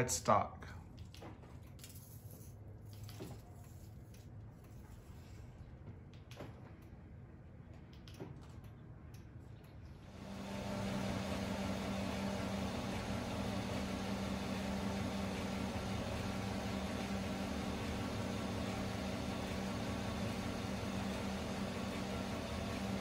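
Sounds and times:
pickup engine idling: 0:10.2 - 0:23.0.

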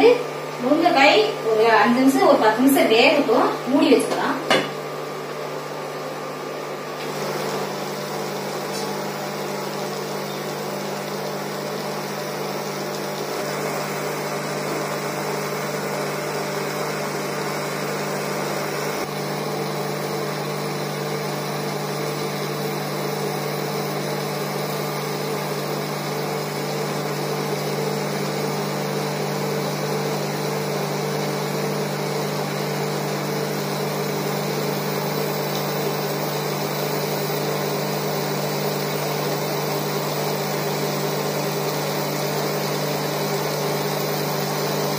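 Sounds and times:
cooktop electrical and fan hum: 0:00.0 - 0:44.9.

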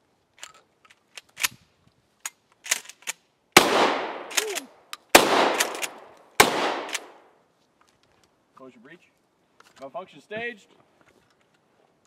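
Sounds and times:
shotgun shots with echo: 0:03.6 - 0:04.6, 0:05.2 - 0:07.2.

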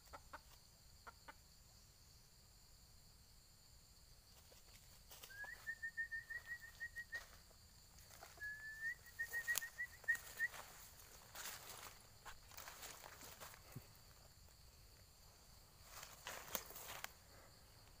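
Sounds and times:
small bird chirping: 0:04.4 - 0:07.4, 0:08.0 - 0:11.4.

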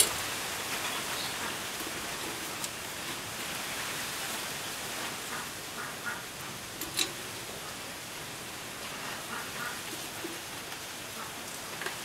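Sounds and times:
outdoor hiss: 0:00.0 - 0:12.0
metal grill rack clinks: 0:06.8 - 0:07.2.

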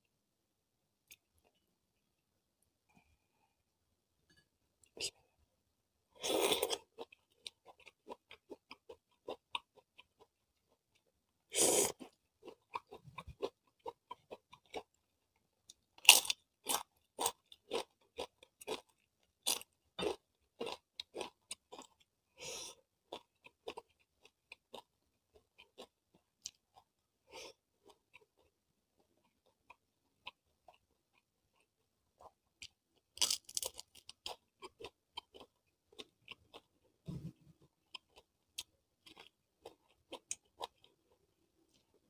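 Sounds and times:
crunching chips: 0:33.1 - 0:35.4.

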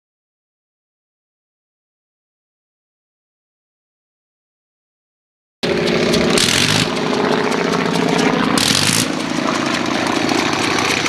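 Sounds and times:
harsh engine bursts: 0:05.6 - 0:11.0
rotary aircraft engine running: 0:05.6 - 0:11.0.

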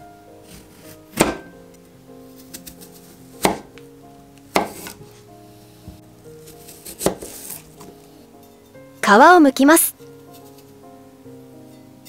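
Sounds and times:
knife slicing fruit: 0:00.4 - 0:01.6, 0:02.3 - 0:03.8, 0:04.5 - 0:05.0, 0:06.4 - 0:08.0.

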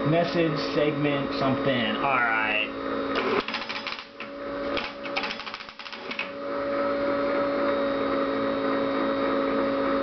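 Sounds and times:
machine humming and whining: 0:00.0 - 0:10.0
teletype mechanical clatter: 0:03.2 - 0:06.3.

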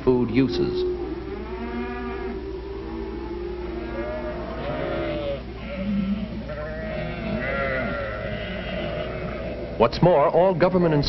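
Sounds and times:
steady low hum: 0:00.0 - 0:11.0
sheep bleating: 0:01.3 - 0:02.4, 0:03.7 - 0:09.8.

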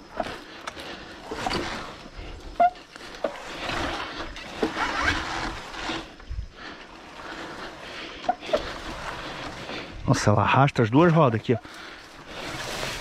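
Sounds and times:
tyres scraping over soil: 0:00.0 - 0:13.0
short squeaks: 0:01.3 - 0:03.4.

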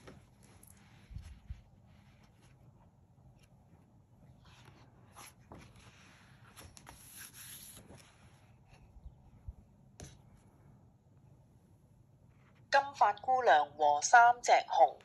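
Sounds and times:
book pages rustling: 0:00.0 - 0:09.0.

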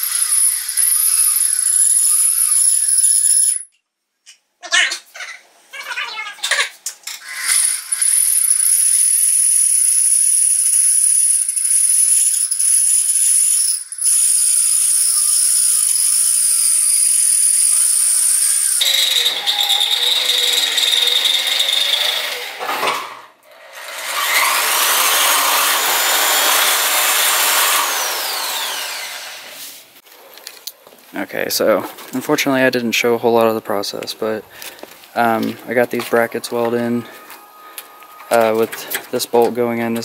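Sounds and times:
electric drill boring into metal: 0:00.0 - 0:03.6, 0:07.2 - 0:22.7, 0:23.6 - 0:29.6.

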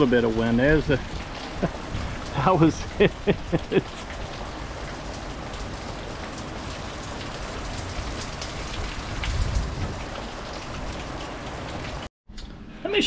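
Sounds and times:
heavy rain falling: 0:00.0 - 0:12.1
wind gust on microphone: 0:00.9 - 0:03.0, 0:08.1 - 0:11.0.

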